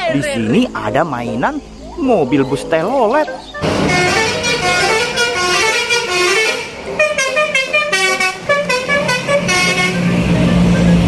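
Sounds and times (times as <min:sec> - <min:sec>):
multi-tone musical bus horn: 0:03.6 - 0:11.0.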